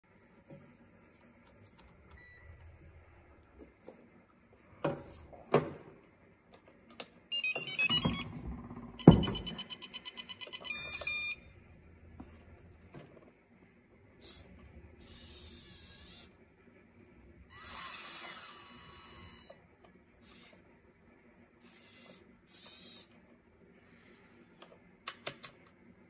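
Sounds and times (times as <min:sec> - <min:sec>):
electronic beeps and held tone: 0:02.2 - 0:02.6, 0:07.3 - 0:11.5
electronic beeping tune: 0:07.3 - 0:11.5.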